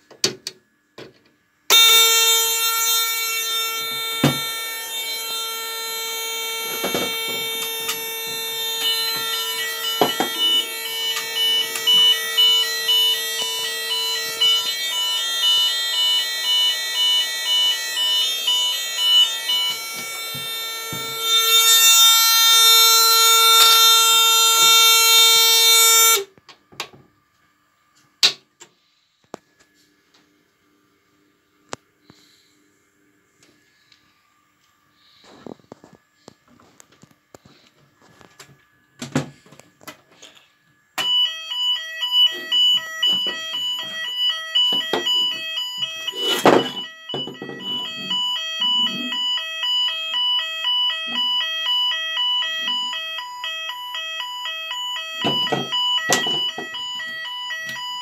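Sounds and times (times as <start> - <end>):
pulsing alarm tone: 1.7 - 26.3, 40.2 - 58.0
steady electronic alarm tone: 1.7 - 26.4, 30.8 - 58.0.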